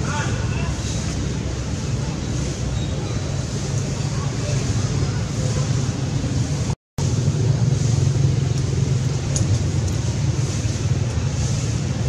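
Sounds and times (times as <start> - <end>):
low rumbling noise: 0.0 - 12.0
hiss: 3.6 - 12.0.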